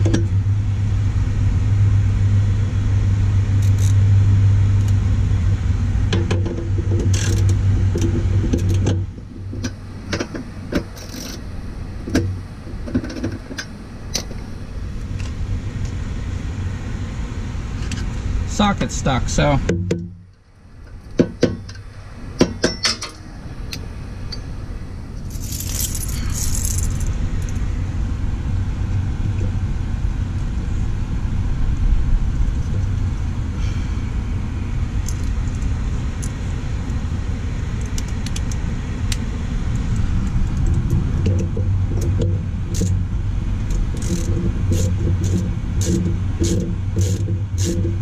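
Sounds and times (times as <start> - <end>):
steady low rumble: 0.0 - 48.0
metal tools clinking: 22.6 - 23.2, 25.3 - 27.1.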